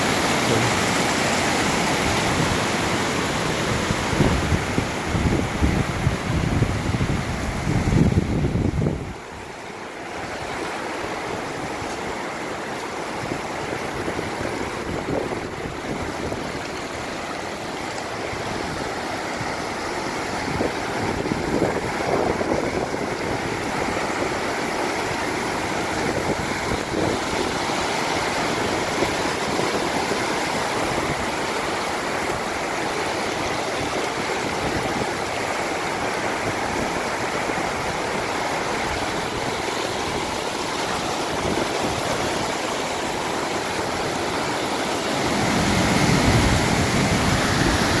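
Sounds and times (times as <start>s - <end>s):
stream rushing over rocks: 0.0s - 48.0s.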